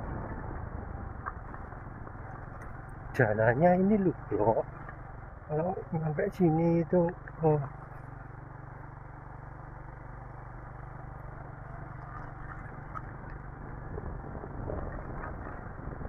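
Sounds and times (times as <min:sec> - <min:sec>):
motorcycle engine at low speed: 0:00.0 - 0:16.0.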